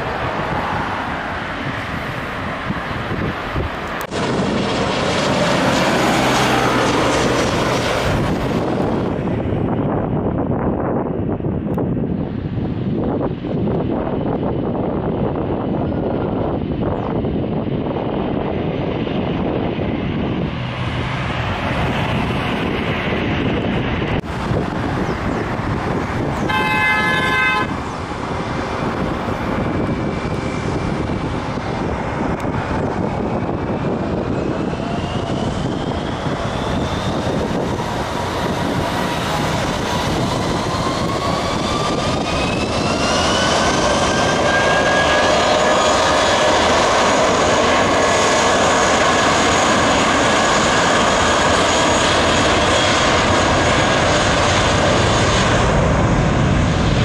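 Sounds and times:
jet engines spooling up: 0.0s - 10.5s, 27.7s - 57.0s.

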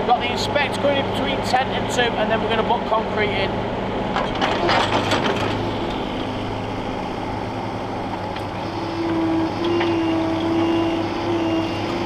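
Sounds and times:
excavator diesel engine running: 0.0s - 12.0s
steady whine: 0.0s - 12.0s
clattering: 4.1s - 6.1s.

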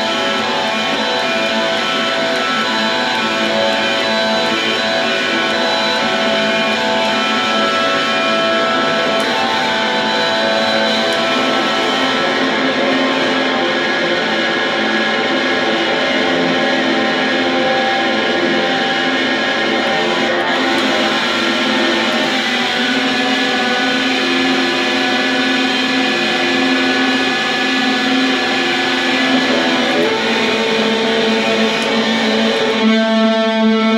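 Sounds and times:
bowed electric guitar drone: 0.0s - 33.9s.

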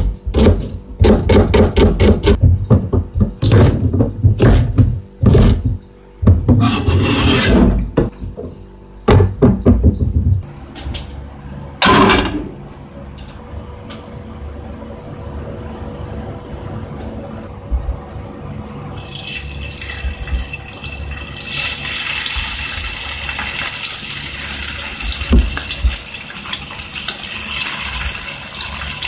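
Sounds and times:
knife chopping on cutting board: 0.3s - 6.7s
knife scraping across board: 6.5s - 7.9s.

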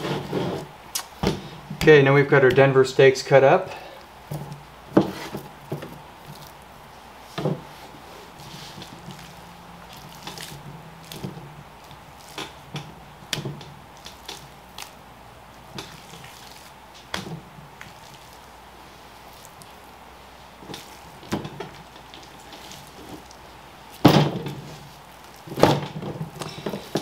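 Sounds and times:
wet slaps of raw meat: 0.9s - 1.2s, 13.3s - 15.0s.

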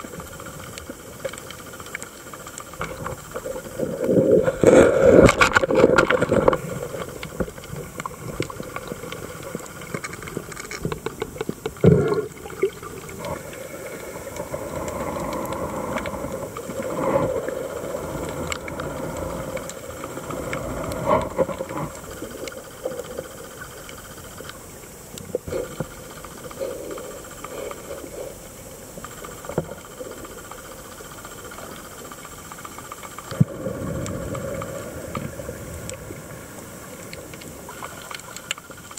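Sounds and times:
muffled underwater rush: 2.2s - 28.4s, 32.9s - 38.6s.

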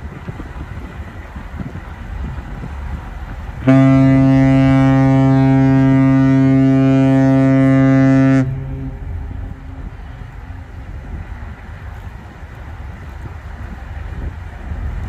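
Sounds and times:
deep ship horn blast: 3.6s - 10.6s.

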